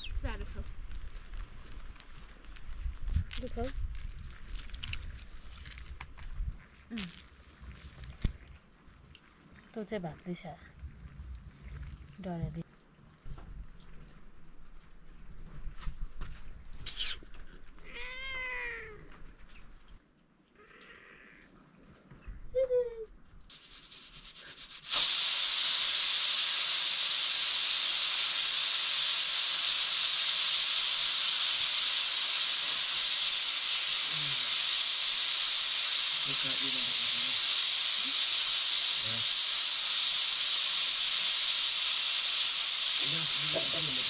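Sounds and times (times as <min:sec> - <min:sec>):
cat meowing: 0:17.8 - 0:19.1
pressure cooker steam hissing: 0:23.5 - 0:44.0.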